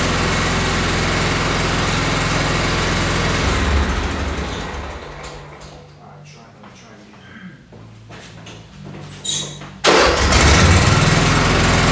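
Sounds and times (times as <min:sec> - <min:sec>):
tractor engine running: 0:00.0 - 0:05.9.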